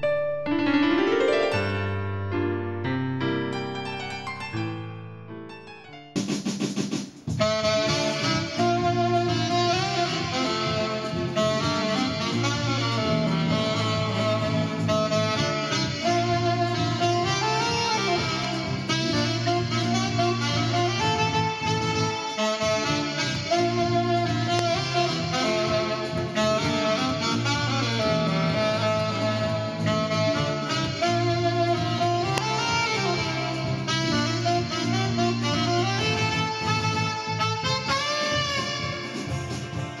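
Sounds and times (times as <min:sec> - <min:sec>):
saxophone melody: 0:00.1 - 0:06.0, 0:07.3 - 0:40.0
acoustic guitar playing: 0:00.6 - 0:06.1
low bass line: 0:07.3 - 0:37.9.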